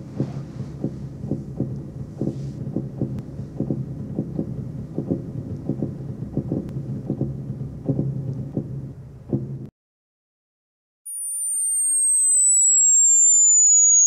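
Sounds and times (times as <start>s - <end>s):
soft irregular thuds: 0.0s - 9.7s
steady low hum: 0.0s - 9.7s.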